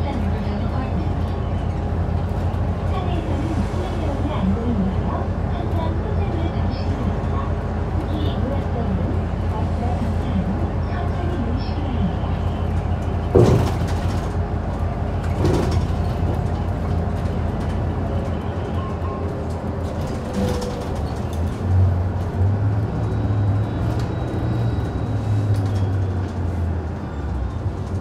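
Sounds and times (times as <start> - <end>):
bus engine and road drone: 0.0 - 28.0
short knocks or rattles: 13.3 - 14.3.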